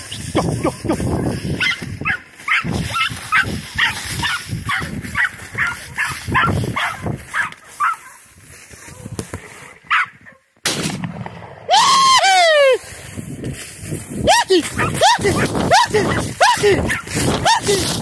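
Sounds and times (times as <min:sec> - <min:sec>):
hunting dogs baying: 0:00.0 - 0:10.4, 0:14.6 - 0:18.0
dogs yelping: 0:01.2 - 0:08.2, 0:09.6 - 0:10.4, 0:14.6 - 0:18.0.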